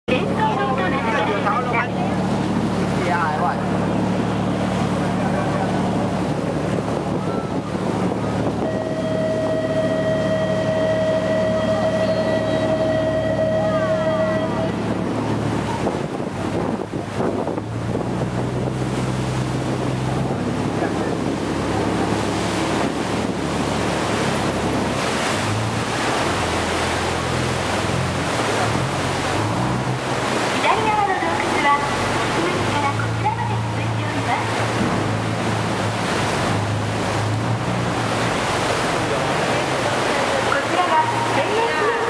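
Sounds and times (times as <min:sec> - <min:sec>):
boat engine running: 0:00.0 - 0:42.0
waves splashing against hull: 0:00.1 - 0:42.0
wind buffeting microphone: 0:00.3 - 0:42.0.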